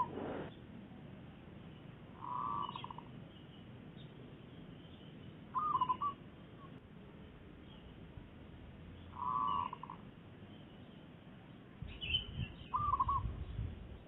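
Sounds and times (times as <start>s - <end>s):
small birds chirping: 0.0s - 14.0s
doves cooing: 5.5s - 6.2s, 12.7s - 13.3s.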